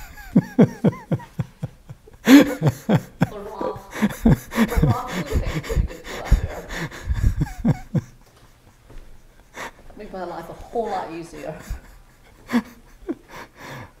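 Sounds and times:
man laughing hard: 0.0 - 8.3.

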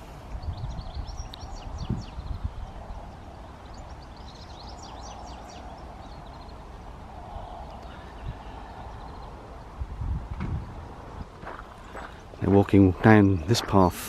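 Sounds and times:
wind rumble: 0.0 - 13.7
small birds chirping: 0.0 - 14.0
footsteps: 11.3 - 14.0.

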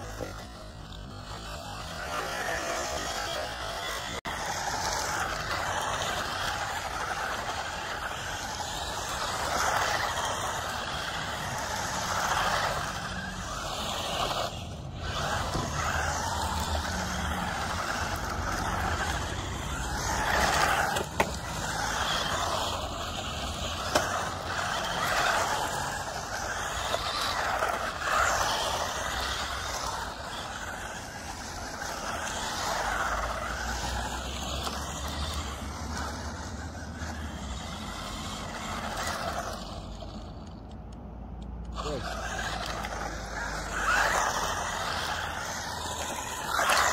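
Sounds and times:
rc cars whirring on asphalt: 0.0 - 46.9
sharp clicks: 40.4 - 41.8.

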